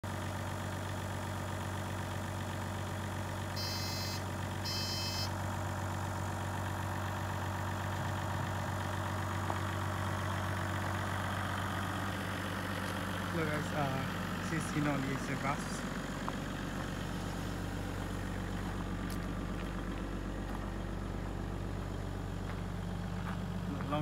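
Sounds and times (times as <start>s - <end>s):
diesel engine idling: 0.0s - 24.0s
short electronic beeps: 3.6s - 5.4s.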